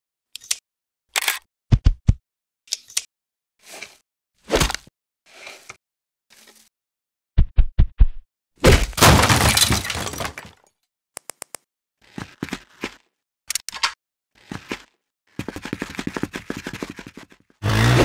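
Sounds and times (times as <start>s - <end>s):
glass breaking crash: 9.0s - 10.5s
quick clicks: 11.2s - 11.6s.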